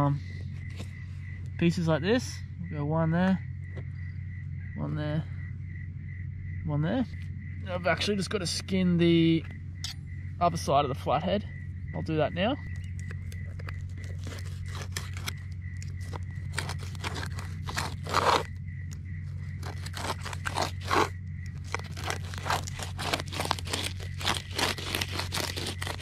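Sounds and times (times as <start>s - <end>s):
knife scraping fish skin: 19.6s - 21.1s, 21.7s - 26.0s.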